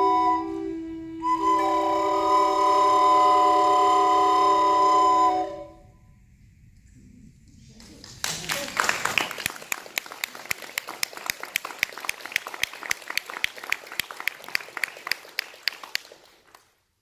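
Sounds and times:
small audience clapping: 0:07.5 - 0:17.0.

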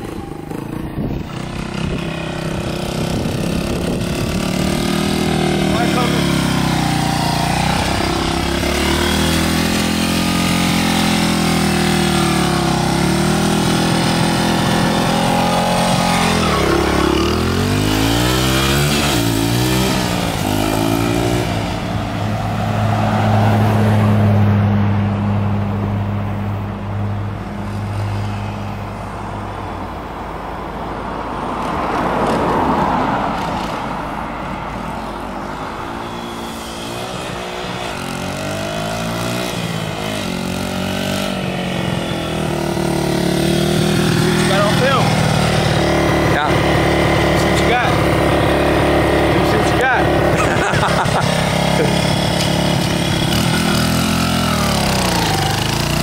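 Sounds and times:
dirt bike engine revving: 0:00.0 - 0:24.1, 0:35.5 - 0:56.0
car passing: 0:00.0 - 0:56.0.

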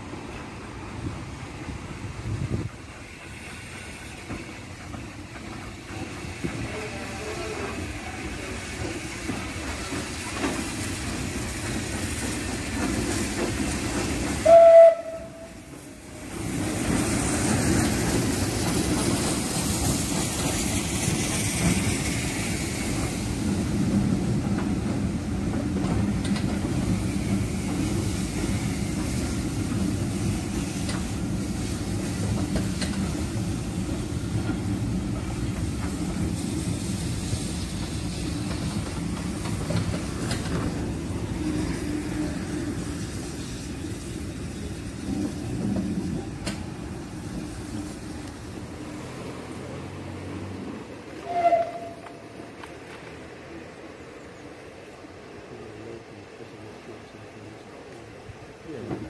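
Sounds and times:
train coaches rumbling on track: 0:00.0 - 0:59.0
steam locomotive whistle: 0:14.4 - 0:15.7, 0:51.2 - 0:52.2.

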